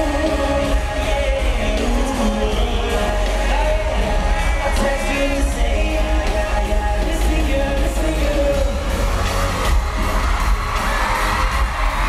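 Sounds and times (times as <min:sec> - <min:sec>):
man singing: 0:00.0 - 0:09.5
live pop music with heavy bass: 0:00.0 - 0:12.0.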